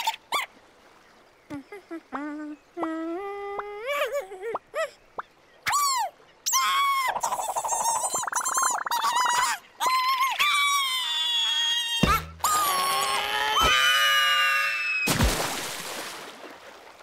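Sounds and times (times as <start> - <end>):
cartoon chick squeaky chirps: 6.5 - 9.5.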